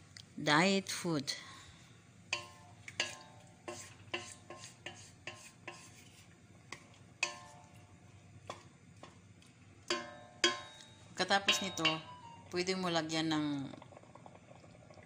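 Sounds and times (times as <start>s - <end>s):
wooden spatula knocking metal pot: 2.4s - 5.9s, 6.7s - 7.7s, 9.8s - 12.2s.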